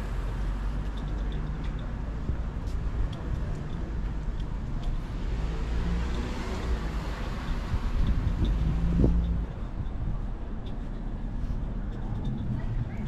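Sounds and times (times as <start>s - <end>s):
low traffic rumble: 0.0s - 13.0s
vehicle passing: 5.0s - 9.6s.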